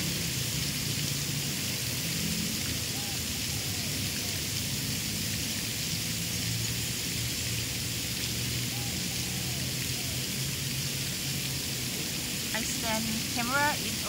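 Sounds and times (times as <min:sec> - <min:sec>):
outdoor background hiss: 0:00.0 - 0:14.0.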